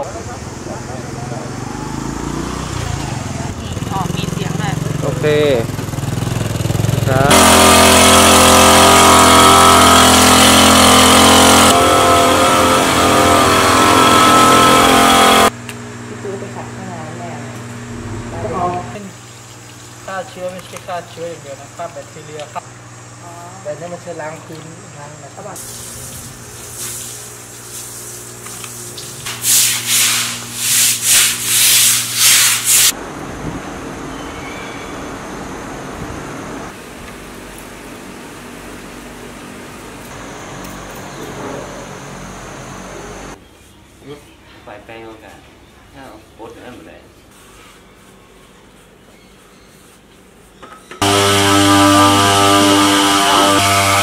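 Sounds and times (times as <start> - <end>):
small sprayer engine running: 3.7 - 15.5, 51.0 - 54.0.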